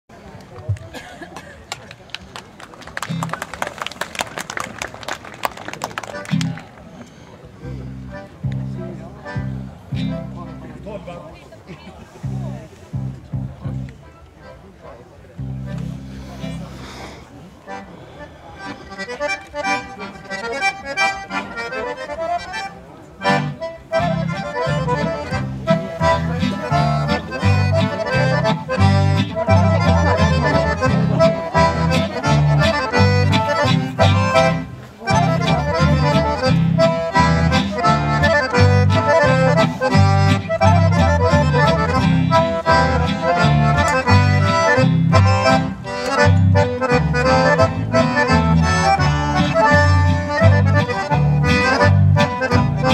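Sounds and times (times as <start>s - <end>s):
accordions playing folk tune: 5.8s - 11.3s, 12.2s - 52.9s
acoustic guitar: 23.3s - 52.9s
upright bass pulsing beat: 24.0s - 52.9s.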